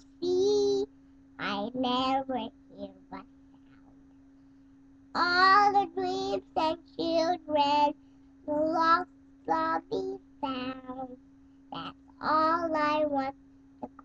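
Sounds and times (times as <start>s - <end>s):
boy singing: 0.0s - 3.2s, 5.2s - 7.9s, 8.5s - 11.2s, 11.8s - 14.0s.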